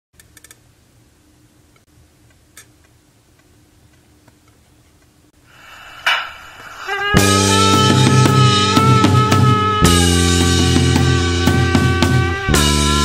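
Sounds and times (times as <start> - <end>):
drum and cymbal hit: 5.6 - 13.0.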